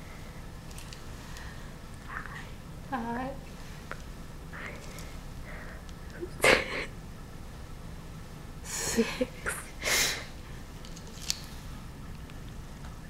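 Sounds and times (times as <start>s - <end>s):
breathy nasal huffs: 9.8s - 10.4s.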